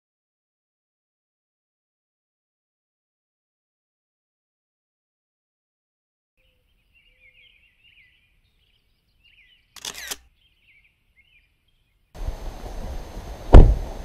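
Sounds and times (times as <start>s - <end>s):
small birds chirping: 6.4s - 12.2s
outdoor background noise: 6.4s - 14.0s.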